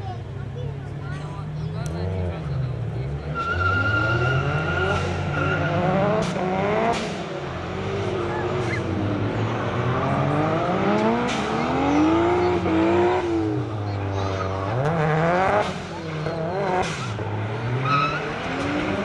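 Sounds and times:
car engines revving: 0.0 - 19.0
tyre squeal: 3.3 - 6.1, 8.4 - 9.0, 16.2 - 18.8.

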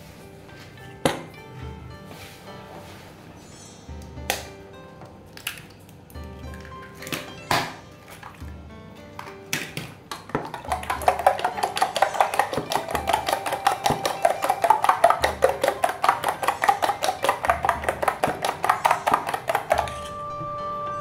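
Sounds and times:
spoon beating eggs in metal bowl: 9.6 - 20.2.

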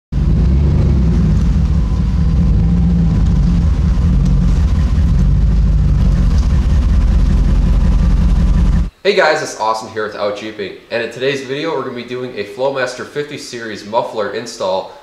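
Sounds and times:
truck engine with exhaust rumble: 0.1 - 8.9.

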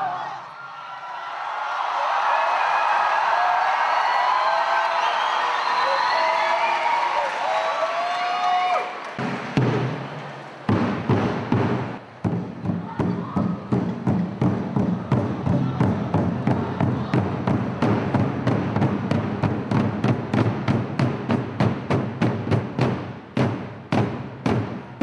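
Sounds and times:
barrel drums beaten with sticks: 9.2 - 10.0, 10.7 - 25.0.

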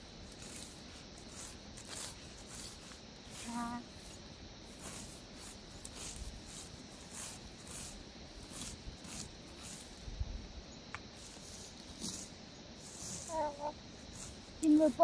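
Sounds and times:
sickle swishing through grass: 0.2 - 10.0.

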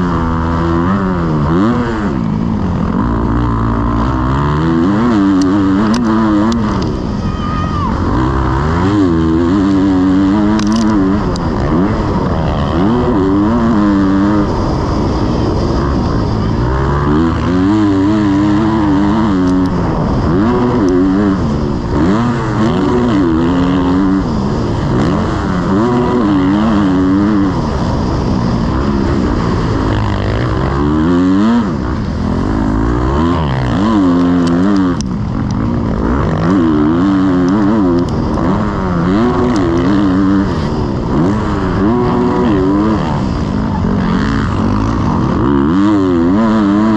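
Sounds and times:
motorbike engine revving: 0.0 - 46.9.

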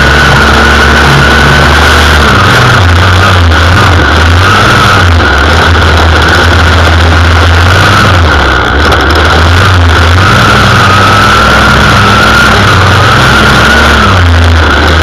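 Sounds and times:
string trimmer engine whining: 0.0 - 15.0.

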